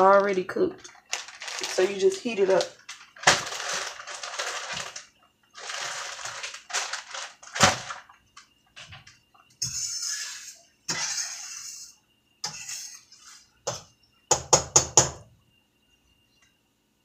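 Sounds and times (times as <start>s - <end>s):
hissing scraping bursts: 9.6s - 13.6s.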